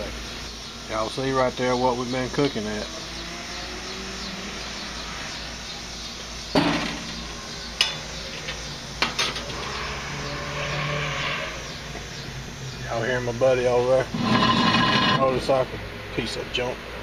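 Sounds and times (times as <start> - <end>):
grill lid metal clank: 7.8 - 9.7.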